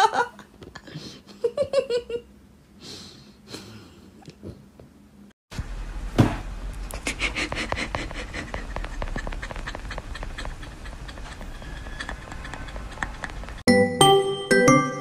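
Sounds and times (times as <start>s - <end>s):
puppy panting: 6.9s - 13.6s.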